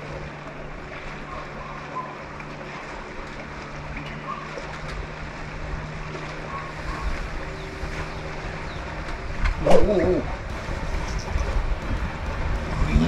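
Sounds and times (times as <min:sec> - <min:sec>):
water gently lapping: 0:00.0 - 0:13.0
wind buffeting microphone: 0:05.0 - 0:13.0.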